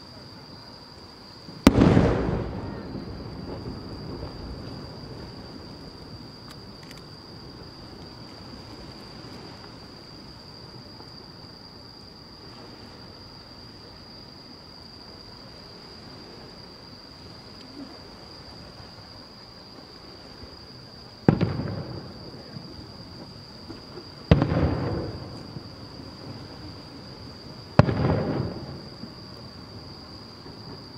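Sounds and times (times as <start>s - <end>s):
firework shells bursting: 1.6s - 4.6s.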